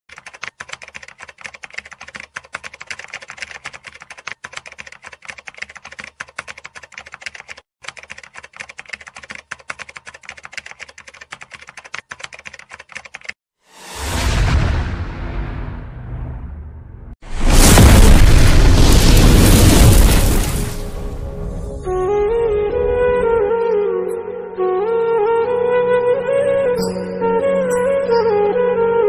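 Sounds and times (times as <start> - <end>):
rapid sharp clicks: 0.1 - 13.4
loud whoosh: 13.7 - 22.0.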